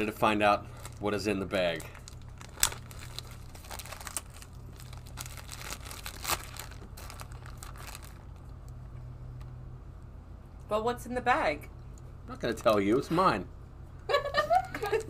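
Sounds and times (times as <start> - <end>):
steady low hum: 0.0 - 15.0
candy wrapper crinkling and tearing: 0.7 - 8.8.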